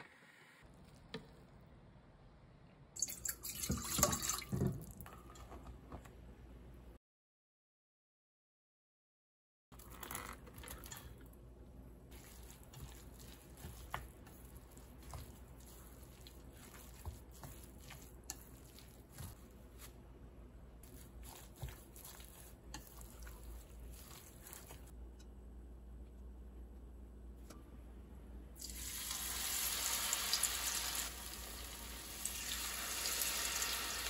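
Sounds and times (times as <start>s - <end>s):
vegetables stirred wetly into batter: 9.8s - 25.0s.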